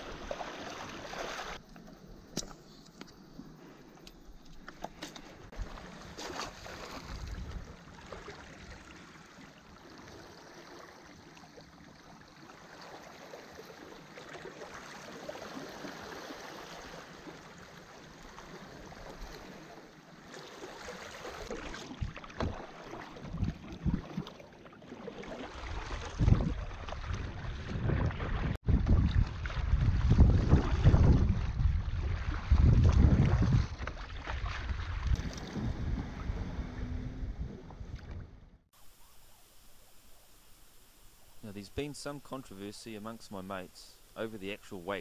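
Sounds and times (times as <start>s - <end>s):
water lapping at shoreline: 0.0s - 45.0s
wind buffeting microphone: 26.1s - 33.9s.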